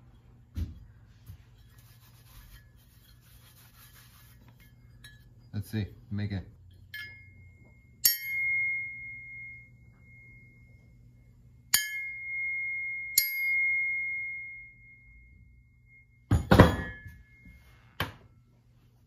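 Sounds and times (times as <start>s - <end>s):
steel axe head ringing when struck: 8.0s - 10.5s, 11.7s - 14.6s.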